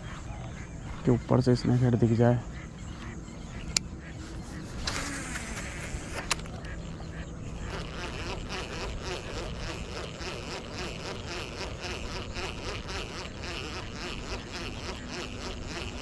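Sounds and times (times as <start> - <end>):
insects buzzing in pulses: 0.0 - 16.0
sharp click: 4.8 - 6.8.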